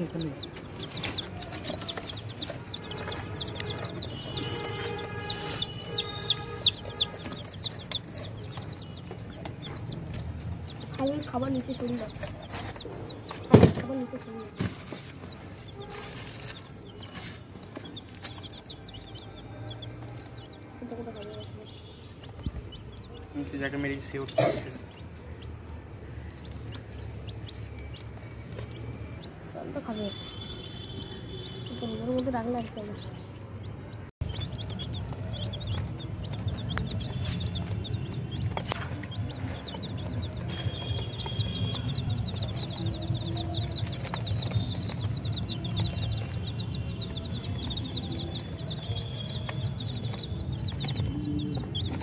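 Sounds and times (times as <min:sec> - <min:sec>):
chicks peeping: 0:00.0 - 0:52.0.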